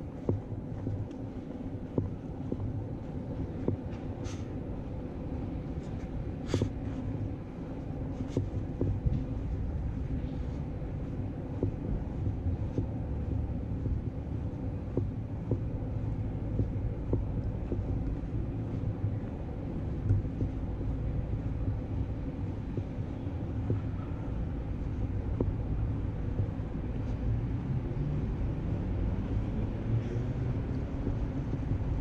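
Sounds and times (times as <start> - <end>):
footsteps on stone paving: 0.0 - 4.4, 5.6 - 24.0, 30.4 - 32.0
distant traffic rumble: 0.0 - 32.0.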